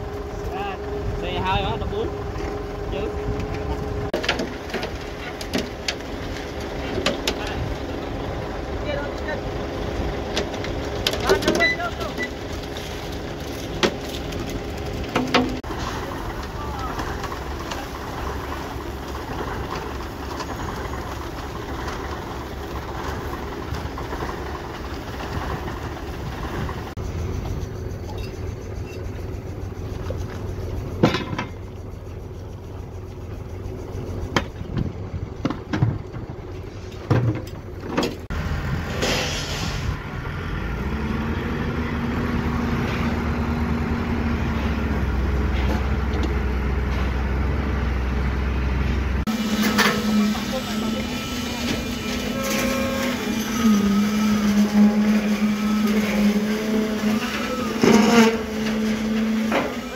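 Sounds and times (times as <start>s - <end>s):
heavy diesel machinery engines: 0.0s - 59.9s.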